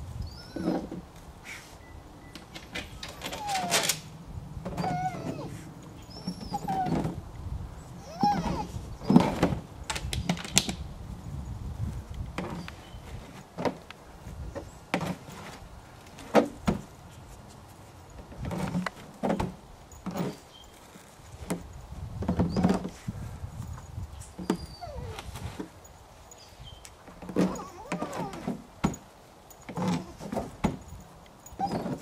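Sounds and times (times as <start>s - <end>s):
dog rummaging in cooler: 8.1s - 9.7s, 14.9s - 16.9s, 18.2s - 23.2s, 27.0s - 29.0s, 29.6s - 32.0s.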